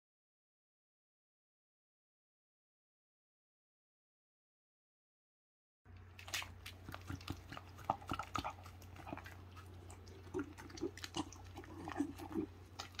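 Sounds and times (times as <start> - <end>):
dog chewing and licking: 6.0 - 13.0.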